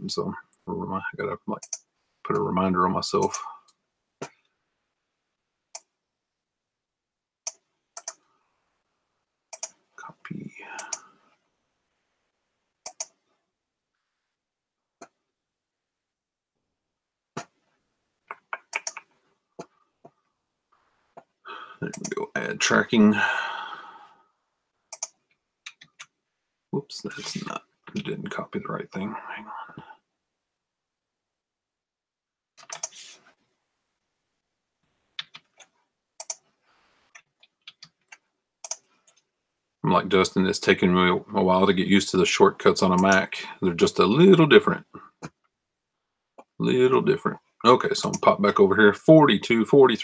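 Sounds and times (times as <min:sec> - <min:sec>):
keyboard and mouse clicks: 0:01.6 - 0:02.4, 0:03.2 - 0:03.5, 0:07.4 - 0:08.2, 0:09.5 - 0:09.8, 0:10.8 - 0:11.0, 0:12.8 - 0:13.2, 0:18.3 - 0:19.7, 0:21.2 - 0:22.3, 0:24.9 - 0:26.2, 0:32.6 - 0:33.1, 0:35.2 - 0:36.5, 0:37.2 - 0:39.3
keyboard keys clicking: 0:21.8 - 0:22.2.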